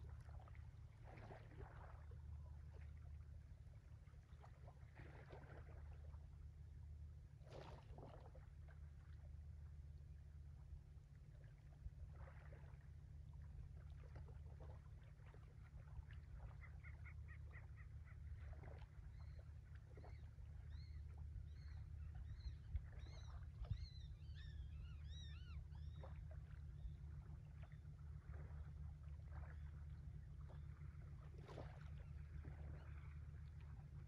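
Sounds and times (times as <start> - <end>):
distant ship engine droning: 8.3 - 34.0.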